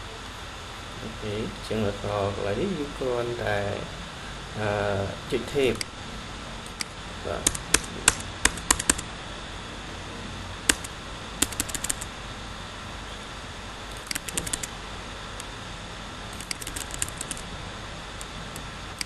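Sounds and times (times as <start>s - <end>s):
steady background hiss: 0.0s - 19.0s
computer keyboard keys clicking: 6.7s - 9.0s, 10.7s - 12.1s, 13.9s - 14.7s, 16.4s - 17.4s.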